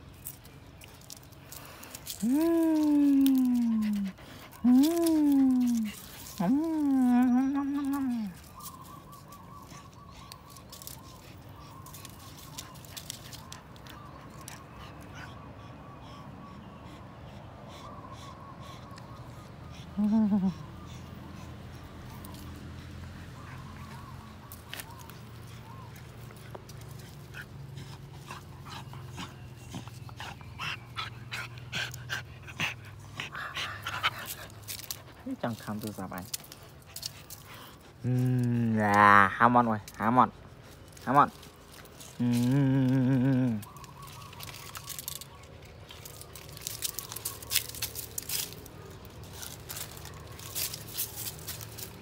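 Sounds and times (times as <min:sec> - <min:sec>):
dry leaves crackling underfoot: 0:00.0 - 0:14.7, 0:22.0 - 0:31.4, 0:33.6 - 0:52.0
dog panting: 0:03.6 - 0:38.0.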